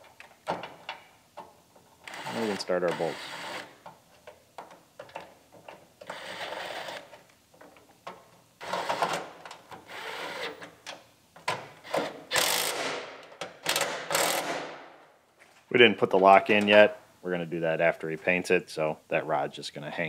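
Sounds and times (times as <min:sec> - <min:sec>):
cordless impact wrench bursts: 0:02.1 - 0:03.7, 0:06.1 - 0:07.0, 0:11.8 - 0:13.1, 0:13.7 - 0:14.8.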